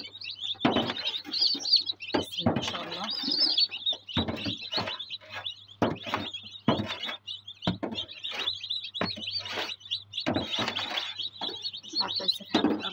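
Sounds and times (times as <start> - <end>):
chicks peeping: 0.0 - 12.9
knocks and bumps of handling: 4.1 - 9.6, 10.2 - 11.6.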